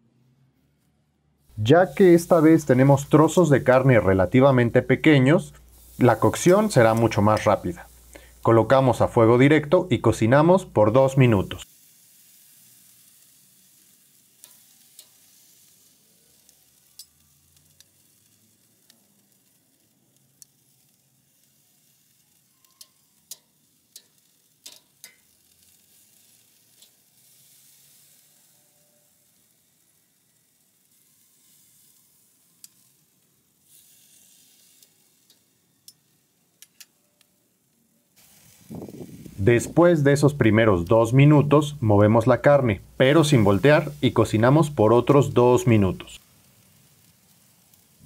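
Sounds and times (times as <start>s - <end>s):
meat sizzling on grill: 1.4s - 48.0s
metal tongs clicking on grate: 14.4s - 15.2s, 22.7s - 25.4s, 36.6s - 36.9s.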